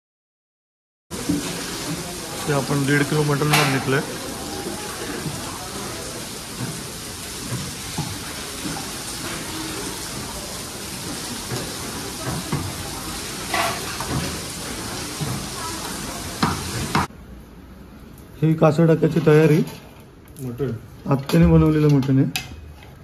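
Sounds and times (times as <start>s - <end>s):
rain hissing: 1.1s - 17.1s
faint voices: 1.2s - 17.0s.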